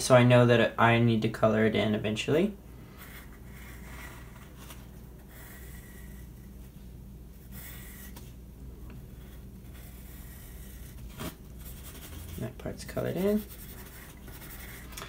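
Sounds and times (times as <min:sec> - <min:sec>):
steady low hum: 0:00.0 - 0:15.0
pencil scratching on paper: 0:03.0 - 0:04.5, 0:05.2 - 0:06.6, 0:07.4 - 0:08.3, 0:09.1 - 0:15.0.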